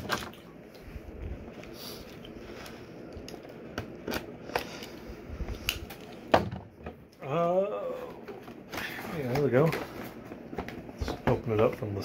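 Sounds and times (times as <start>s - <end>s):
cardboard packaging rustling: 8.4s - 12.0s.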